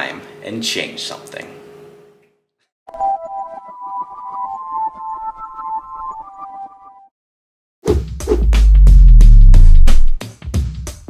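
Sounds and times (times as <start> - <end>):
fast drumbeat: 7.9 - 11.0
deep bass swell: 8.5 - 10.1.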